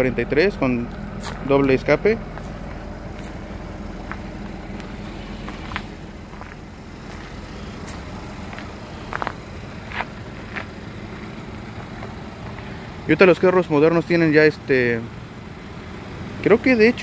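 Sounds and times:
car engine idling: 0.0 - 17.0
footsteps on pavement: 0.8 - 1.5, 2.3 - 12.9.

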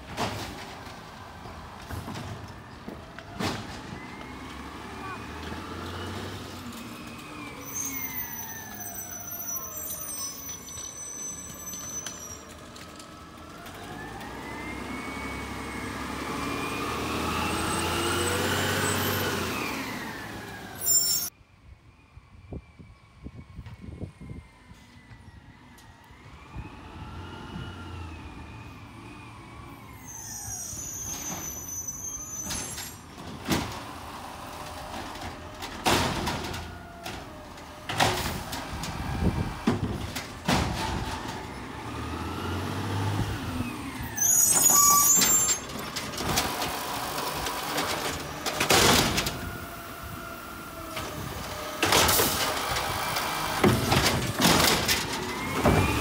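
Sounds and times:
loud bangs and clanks of bins: 0.0 - 4.0, 32.4 - 42.2, 44.5 - 49.6, 50.9 - 56.0.

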